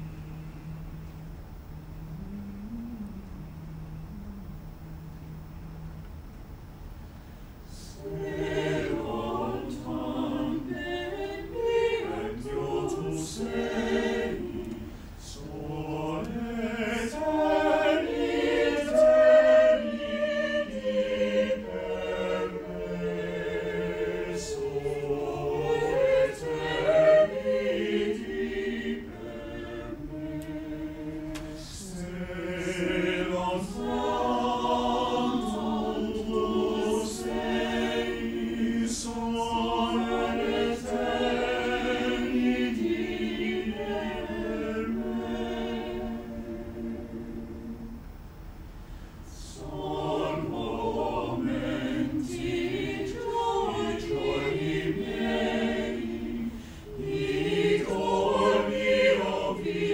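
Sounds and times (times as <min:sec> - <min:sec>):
choir singing a cappella: 0:00.0 - 0:04.4, 0:07.6 - 0:48.2, 0:48.9 - 0:59.9.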